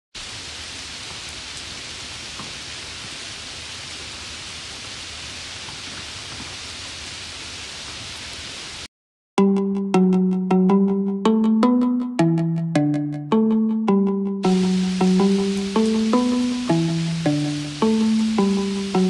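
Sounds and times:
steady rain hiss: 0:00.2 - 0:08.9, 0:14.4 - 0:19.0
drops ticking: 0:14.4 - 0:19.0.

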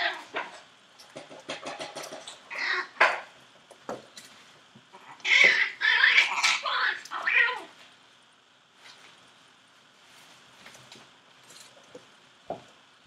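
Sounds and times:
puppies yelping and squealing: 0:05.0 - 0:07.6.

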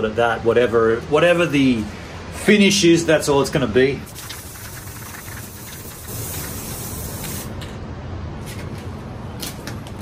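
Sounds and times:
spray paint can hissing: 0:04.1 - 0:07.6.

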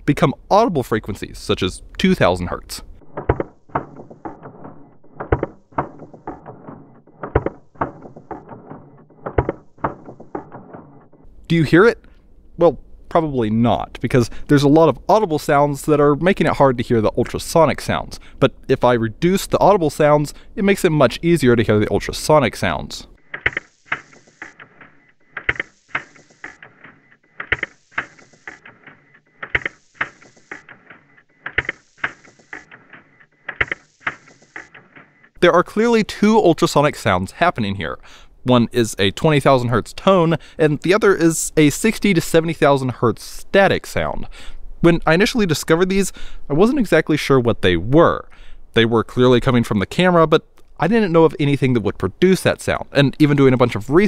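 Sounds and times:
static hiss: 0:19.9 - 0:35.4
slowed camera shutter clacks: 0:23.2 - 0:35.4.

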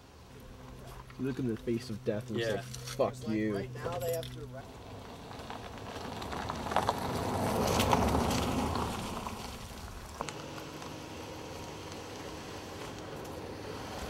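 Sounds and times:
steady low hum: 0:00.0 - 0:06.3, 0:09.8 - 0:14.0
vehicle on gravel road: 0:00.0 - 0:14.0.

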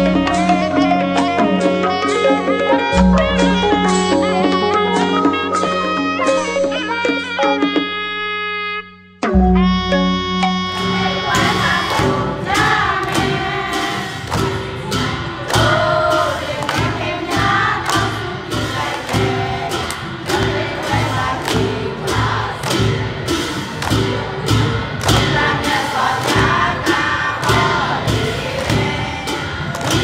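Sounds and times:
steady percussive beat: 0:00.0 - 0:07.8, 0:09.2 - 0:30.0
held instrumental notes: 0:00.0 - 0:30.0
group singing in chorus: 0:10.8 - 0:30.0.

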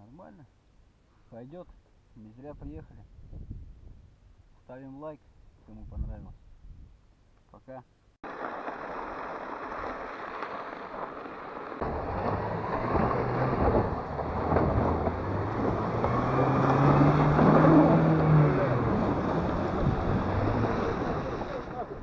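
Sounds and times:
sled scraping across ice: 0:08.3 - 0:22.0
car engine revving: 0:11.8 - 0:22.0.

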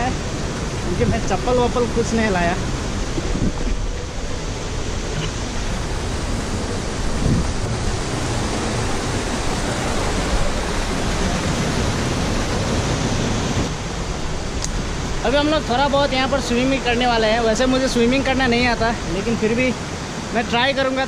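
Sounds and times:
low rumble on microphone: 0:00.0 - 0:14.6
mountain stream rushing: 0:00.0 - 0:21.0.

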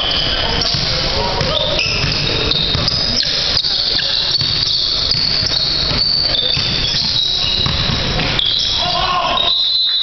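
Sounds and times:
gym hall noise: 0:00.0 - 0:10.0
sneakers squeaking: 0:00.0 - 0:10.0
basketball bouncing on wooden floor: 0:01.4 - 0:03.0, 0:04.4 - 0:08.4.

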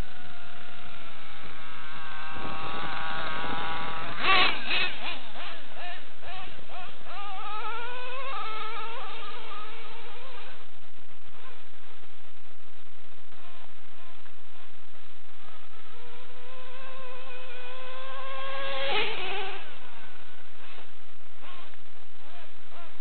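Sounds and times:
nitro engine high-pitched buzz: 0:00.0 - 0:23.0
loud engine burst: 0:00.1 - 0:10.5.

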